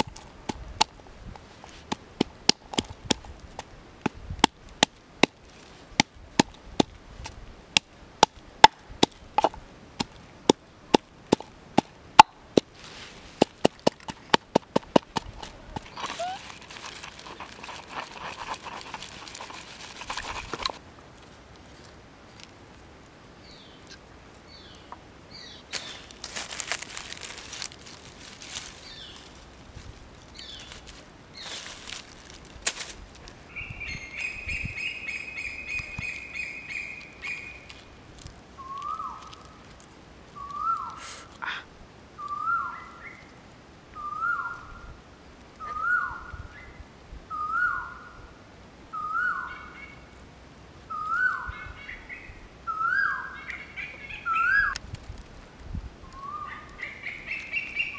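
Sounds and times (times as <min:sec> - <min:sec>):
pestle grinding in a mortar: 0:13.4 - 0:20.8
birds chirping: 0:15.3 - 0:20.8, 0:23.4 - 0:26.3, 0:28.5 - 0:29.5, 0:30.2 - 0:32.1, 0:33.4 - 0:38.0, 0:38.6 - 0:39.6, 0:40.4 - 0:41.6, 0:48.9 - 0:50.1, 0:50.9 - 0:54.8, 0:56.1 - 0:57.9
bird trilling: 0:15.8 - 0:16.6, 0:33.5 - 0:37.7, 0:50.9 - 0:54.8, 0:56.2 - 0:57.9
bird whistled call: 0:33.5 - 0:37.6, 0:38.6 - 0:39.2, 0:40.4 - 0:41.2, 0:42.2 - 0:43.3, 0:44.0 - 0:44.8, 0:45.6 - 0:48.2, 0:48.9 - 0:50.0, 0:50.9 - 0:54.8, 0:56.1 - 0:57.9.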